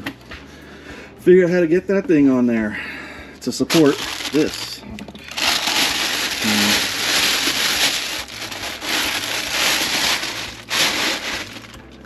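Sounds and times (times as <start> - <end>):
plastic bag crinkling: 3.7 - 12.0.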